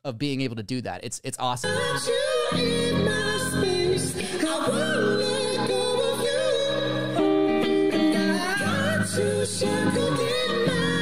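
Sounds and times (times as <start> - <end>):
men singing high with vibrato: 1.6 - 7.4, 8.0 - 11.0
strummed rhythm guitar: 2.5 - 11.0.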